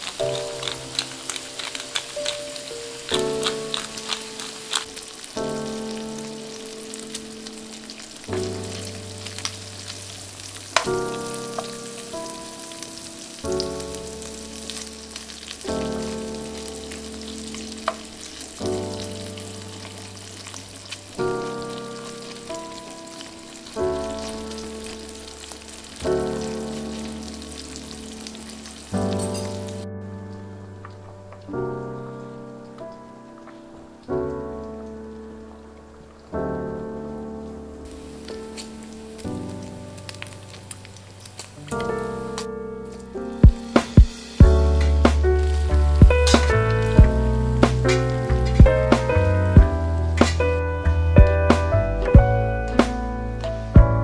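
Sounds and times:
bacon sizzling in frying pan: 0.0 - 29.9, 37.9 - 50.9
background music slow chords: 0.0 - 54.0.

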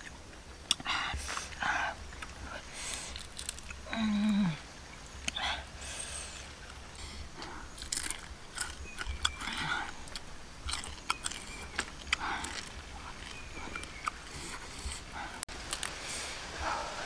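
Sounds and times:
person crunching and chewing: 0.0 - 3.9, 7.4 - 16.0.

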